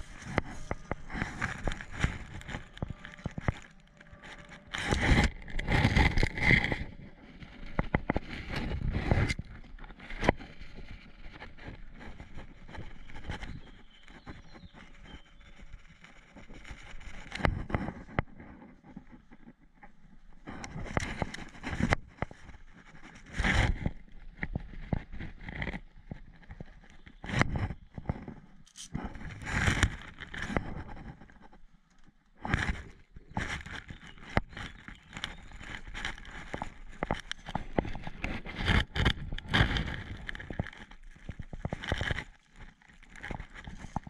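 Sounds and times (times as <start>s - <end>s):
footsteps on twigs and leaves: 0.0s - 9.4s, 32.4s - 44.0s.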